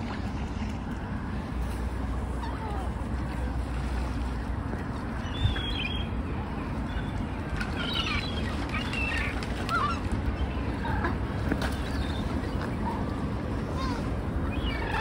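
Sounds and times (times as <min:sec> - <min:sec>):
gulls calling: 0:04.2 - 0:15.0.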